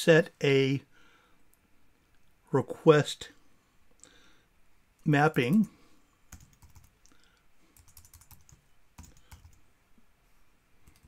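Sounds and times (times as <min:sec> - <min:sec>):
computer keyboard typing: 0:06.3 - 0:09.6.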